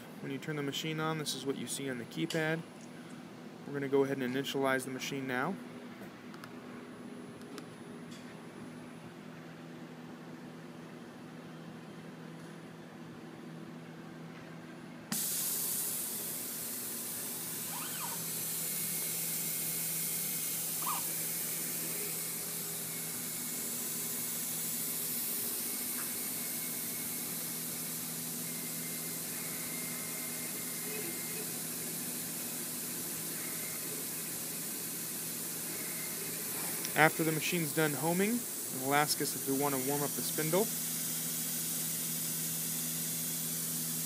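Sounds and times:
hissing air rush: 15.1 - 44.0
faint short machine whines: 17.4 - 19.4, 28.5 - 31.8.

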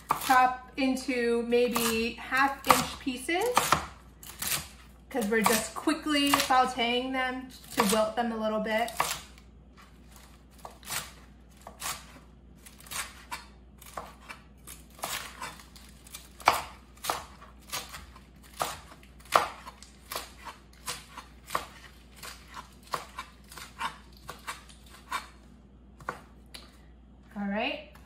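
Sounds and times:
knife chopping on cutting board: 0.0 - 0.6, 1.6 - 6.8, 10.2 - 25.4, 26.0 - 26.4.

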